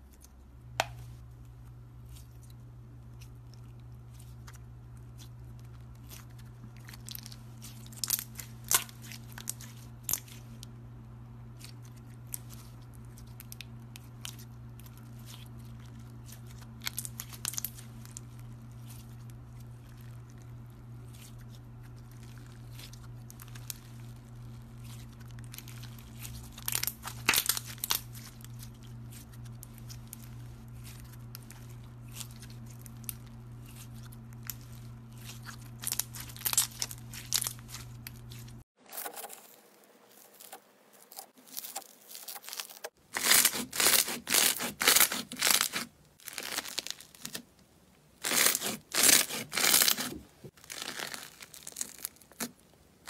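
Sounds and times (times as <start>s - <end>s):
steady low hum: 0.0s - 41.8s
slime crackling and popping: 22.0s - 38.6s, 41.5s - 47.4s, 48.2s - 52.8s.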